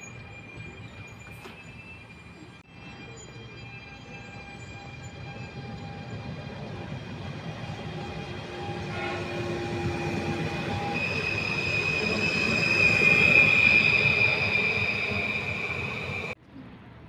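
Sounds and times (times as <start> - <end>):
train running past: 0.0 - 16.4
high-pitched wheel squeal: 7.6 - 16.4.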